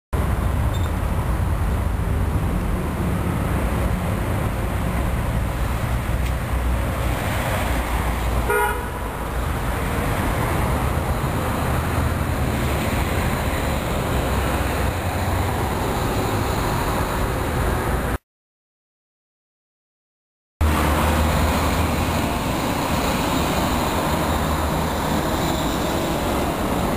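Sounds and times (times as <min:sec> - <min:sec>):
traffic rumble: 0:00.2 - 0:18.2, 0:20.6 - 0:26.9
tram rolling on track: 0:00.2 - 0:18.2, 0:20.6 - 0:26.9
short horn toot: 0:08.5 - 0:08.9.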